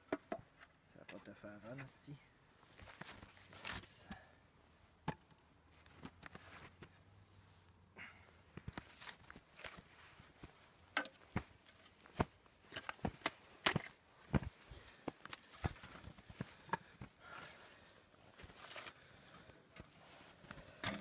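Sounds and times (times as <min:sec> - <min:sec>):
boots crunching in snow: 0:11.3 - 0:16.6.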